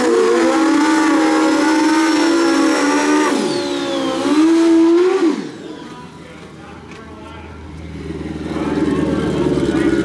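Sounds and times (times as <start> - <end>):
motorcycle engine revving: 0.0 - 5.7, 7.9 - 10.0
high whistle sliding down: 1.0 - 5.5.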